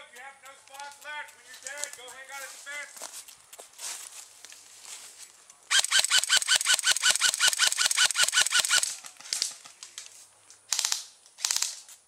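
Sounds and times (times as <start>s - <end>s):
airsoft rifle rapid fire: 5.7s - 9.0s, 10.7s - 11.8s.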